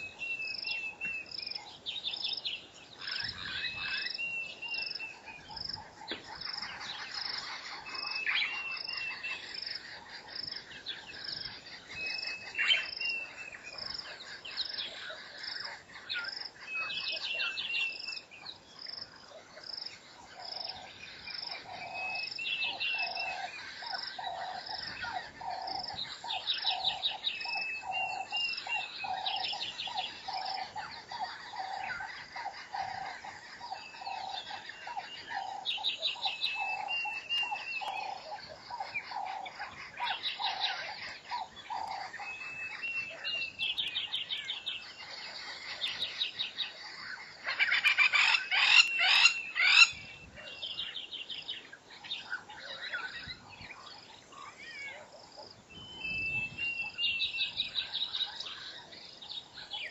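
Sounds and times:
whistled bird calls: 10.8s - 18.4s, 20.7s - 46.8s, 47.4s - 51.0s, 55.7s - 58.8s
bird trills: 21.4s - 50.8s.

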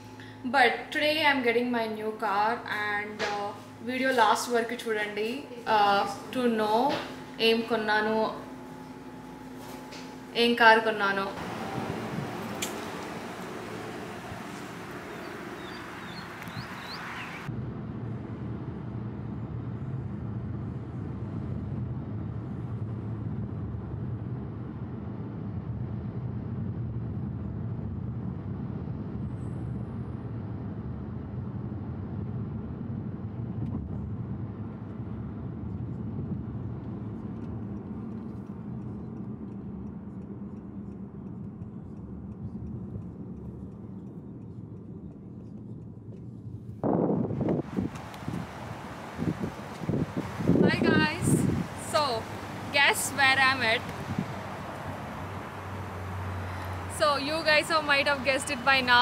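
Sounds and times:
car rumble from inside cabin: 11.4s - 17.5s.

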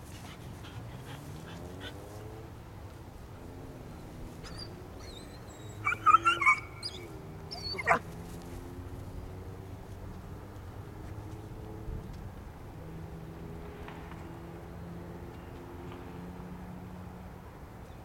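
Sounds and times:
dog whining and yelping: 4.4s - 8.1s.

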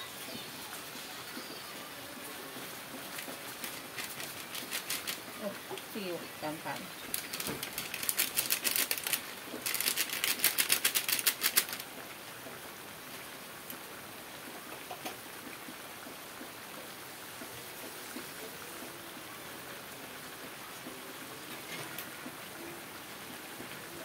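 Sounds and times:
rapid crackling in a wok: 2.6s - 12.2s.

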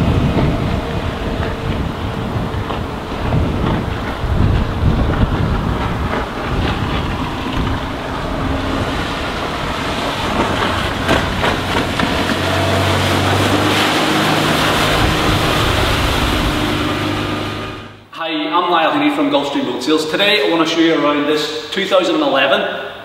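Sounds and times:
wind noise on microphone: 0.0s - 18.0s
boat engine droning: 0.0s - 18.1s.

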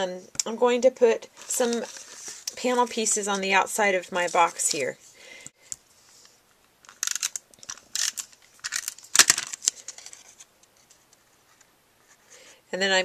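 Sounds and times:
paper rustling and scraping: 1.4s - 3.0s.

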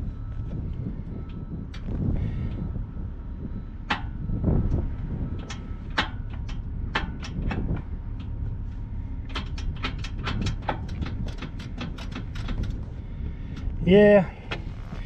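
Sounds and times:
motorcycle engine idling: 0.0s - 15.0s
sharp clicks and ticks: 3.9s - 8.4s, 9.3s - 13.8s.

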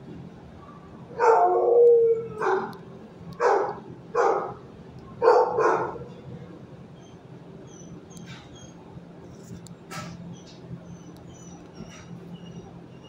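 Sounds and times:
dog barking: 1.2s - 1.8s, 2.4s - 2.8s, 3.4s - 4.6s, 5.2s - 6.1s.

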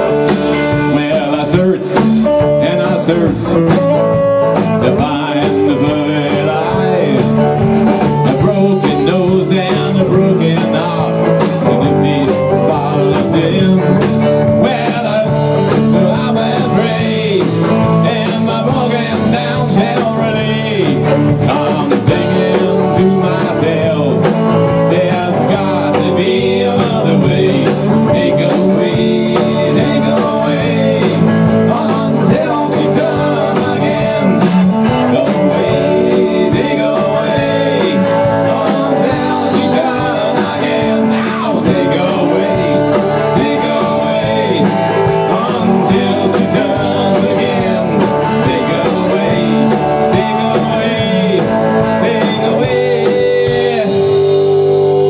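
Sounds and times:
drum kit: 0.0s - 55.0s
electric bass: 0.0s - 55.0s
electric guitars: 0.0s - 55.0s.

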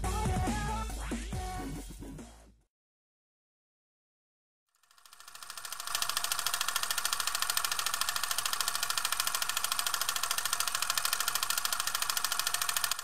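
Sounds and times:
rapid mechanical clicking clatter: 4.8s - 13.0s.

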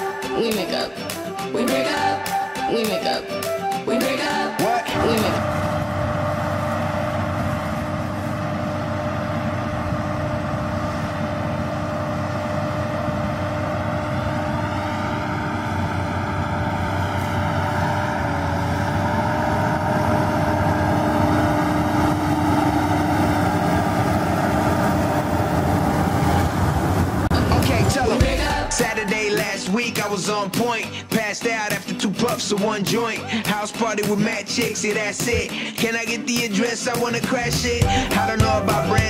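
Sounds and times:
tractor engine running: 4.9s - 30.1s, 37.4s - 39.0s.

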